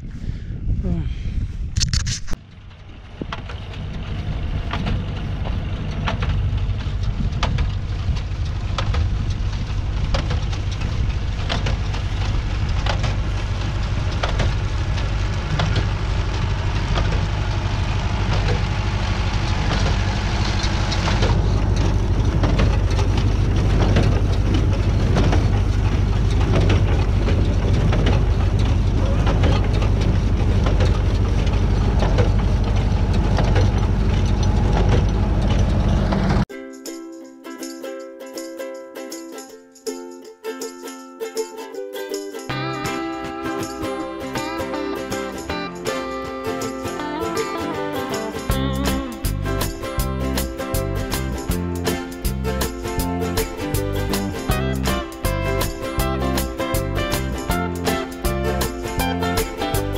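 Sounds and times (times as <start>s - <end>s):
tractor diesel engine running: 2.4s - 36.5s, 42.5s - 59.9s.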